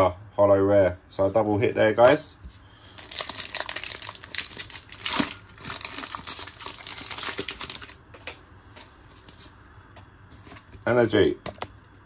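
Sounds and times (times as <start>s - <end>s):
foil wrapper tearing: 2.8s - 8.0s
plastic foil crinkling: 2.8s - 8.4s.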